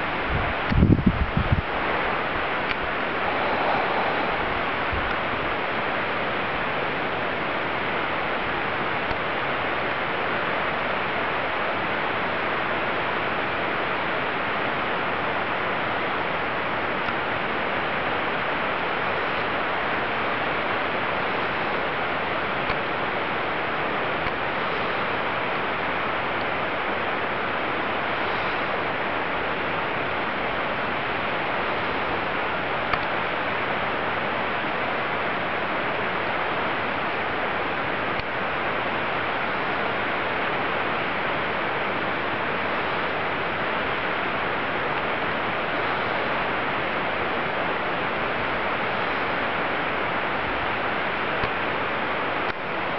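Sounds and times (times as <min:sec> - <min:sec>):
mountain stream rushing: 0:00.0 - 0:52.9.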